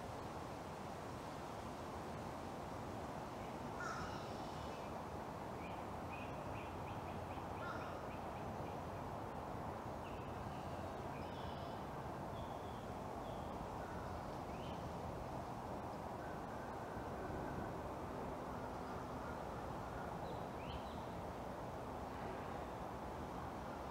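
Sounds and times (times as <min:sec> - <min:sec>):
background hiss: 0:00.0 - 0:23.9.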